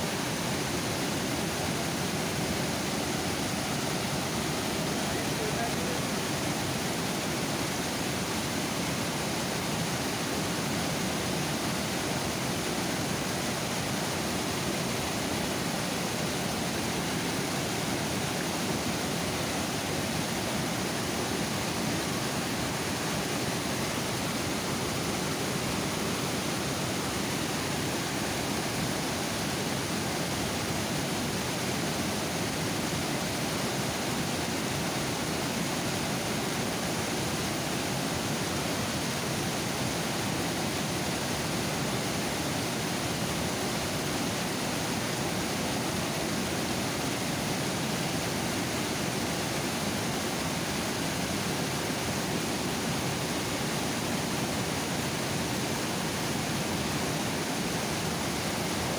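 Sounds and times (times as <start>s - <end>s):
water rushing over a spillway: 0.0s - 58.9s.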